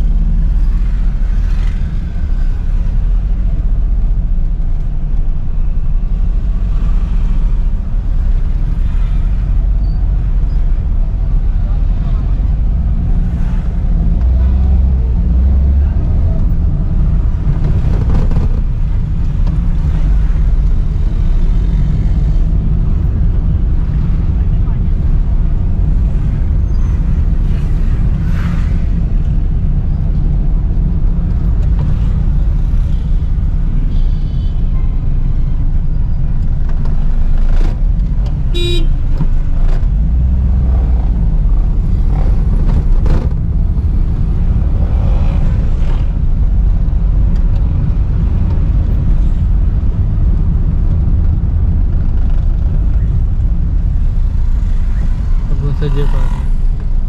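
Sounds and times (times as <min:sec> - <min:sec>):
car engine and road noise: 0:00.0 - 0:57.0
vehicle horn: 0:38.5 - 0:39.0.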